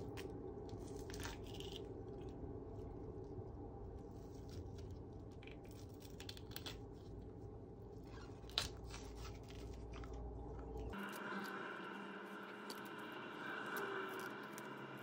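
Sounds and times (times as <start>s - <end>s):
fish skin tearing and crackling: 5.7s - 7.0s.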